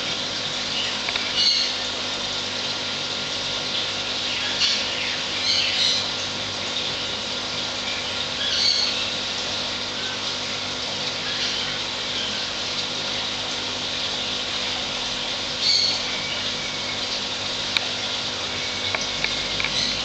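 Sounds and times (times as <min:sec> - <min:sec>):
aquarium pump hiss and hum: 0:00.0 - 0:20.0.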